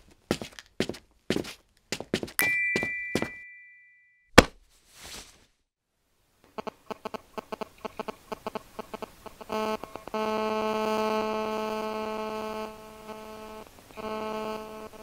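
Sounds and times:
footsteps: 0.1 - 3.4, 4.4 - 5.5
two-tone chime: 2.4 - 4.3
loud thump: 4.4 - 4.6.

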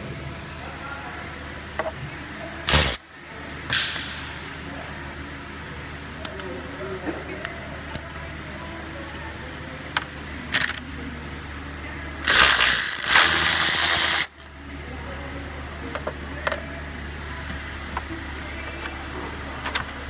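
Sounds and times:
cordless ratchet motor spinning: 2.7 - 3.0, 10.5 - 10.8, 12.2 - 14.3
tool and socket clicks: 10.5 - 10.8.

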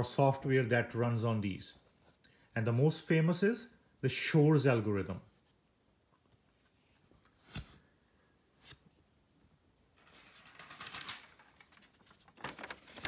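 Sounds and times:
paper rustling: 10.0 - 13.0.

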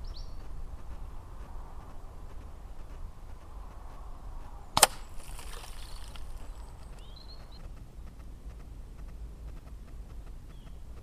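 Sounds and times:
bird chirp: 0.0 - 0.6, 5.0 - 8.3, 10.1 - 11.0
air rifle shot: 4.8 - 5.6.

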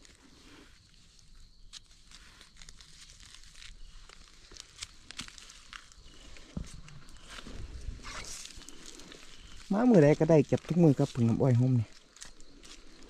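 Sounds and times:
rustling of dry leaves: 0.0 - 13.0.

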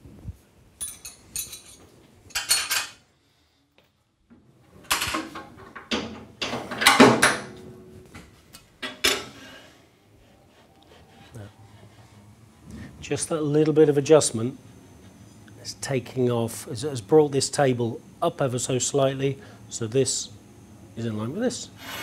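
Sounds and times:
metal tools clinking on metal table: 0.8 - 3.0.

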